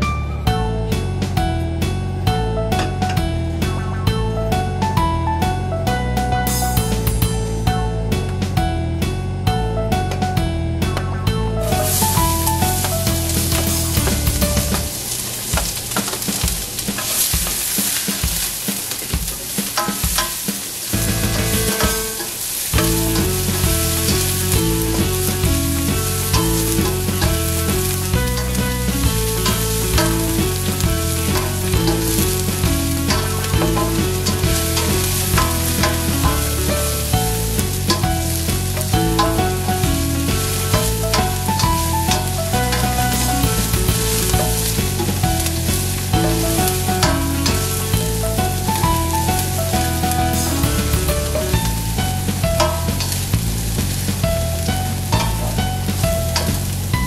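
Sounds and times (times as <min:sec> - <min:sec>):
background music: 0:00.0 - 0:57.0
onion sizzling in oil: 0:11.6 - 0:57.0
spatula stirring in a pan: 0:11.7 - 0:56.9.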